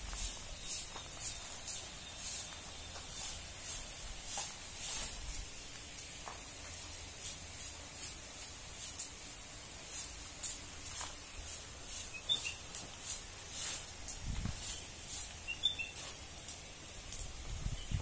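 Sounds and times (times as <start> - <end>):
footsteps crunching on dry ground: 0.0 - 6.7, 10.6 - 16.2
faint bird chirps: 12.0 - 12.7, 15.4 - 16.0.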